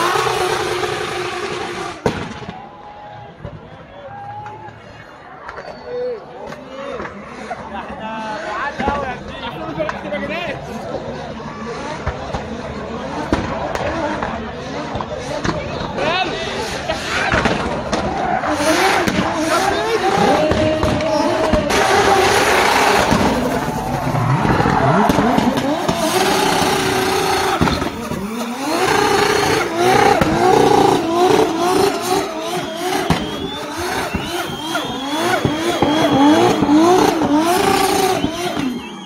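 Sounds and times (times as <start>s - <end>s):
car engine revving hard: 0.0s - 2.0s, 10.7s - 39.0s.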